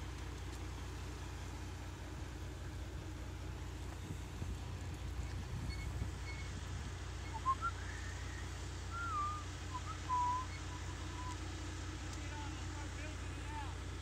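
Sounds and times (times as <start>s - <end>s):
steady low rumble: 0.0s - 14.0s
person whistling: 7.3s - 8.3s, 8.9s - 11.4s.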